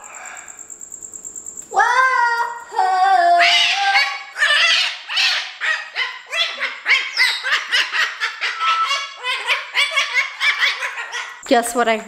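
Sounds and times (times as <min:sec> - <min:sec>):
cockatoo squawking: 0:02.8 - 0:11.4.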